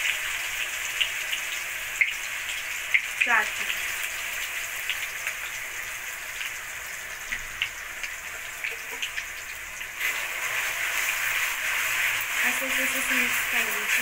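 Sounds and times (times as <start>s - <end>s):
oil popping and crackling: 0.0s - 14.0s
paste sizzling in hot oil: 0.0s - 14.0s.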